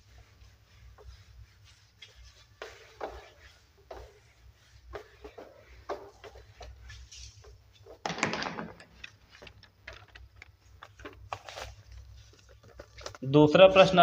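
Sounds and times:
duster rubbing on whiteboard: 0.0s - 8.0s.

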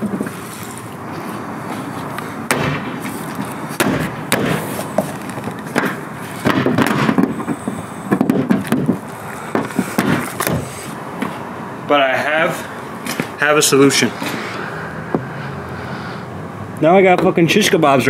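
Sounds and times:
wooden board and steel rods knocking: 5.7s - 7.5s, 8.1s - 9.0s.

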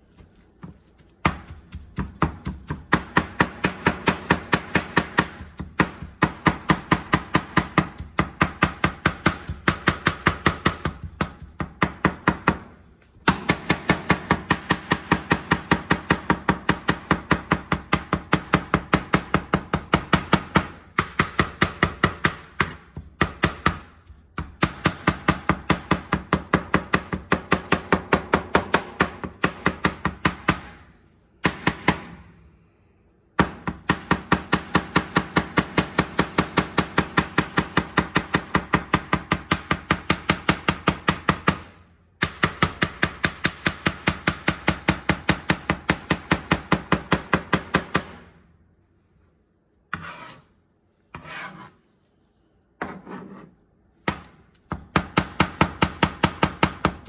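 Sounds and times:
knife chopping on cutting board: 0.1s - 12.7s, 51.2s - 51.8s.

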